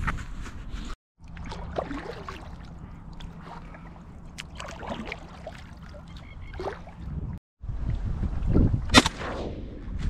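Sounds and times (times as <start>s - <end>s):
small water splashes: 1.2s - 7.2s
water lapping against hull: 1.2s - 7.4s.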